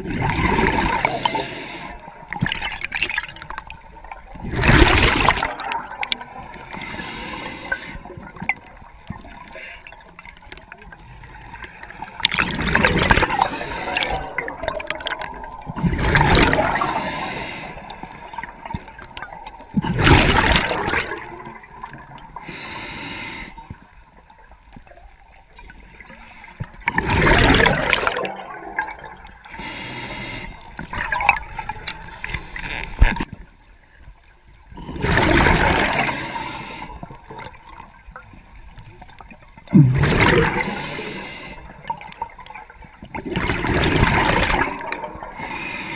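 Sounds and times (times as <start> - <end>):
bubbles gurgling underwater: 0.0 - 1.4, 2.0 - 6.7, 10.2 - 17.0, 18.4 - 22.4, 26.8 - 29.5, 30.6 - 32.1, 34.7 - 36.2, 37.0 - 41.1, 41.7 - 45.4
regulator hissing inhalations: 0.9 - 2.0, 6.3 - 8.1, 13.2 - 14.3, 16.7 - 18.5, 22.4 - 23.6, 26.1 - 26.6, 29.5 - 30.7, 32.0 - 33.0, 35.8 - 37.0, 40.5 - 41.7, 45.3 - 45.9.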